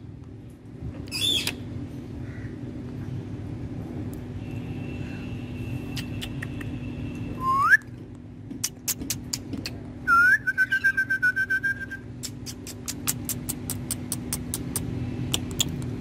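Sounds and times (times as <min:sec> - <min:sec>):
whistling: 0:07.4 - 0:07.9, 0:10.1 - 0:12.0
sharp clicks: 0:12.2 - 0:16.0.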